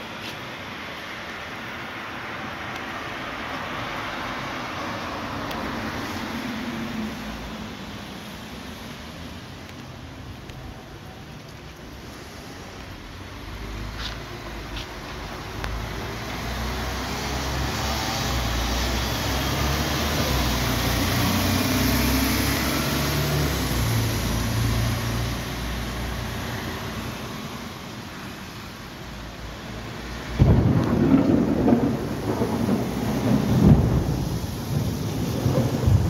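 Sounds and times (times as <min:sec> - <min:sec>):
thunder clap: 0:30.3 - 0:36.0
thunder rumbling: 0:30.3 - 0:36.0.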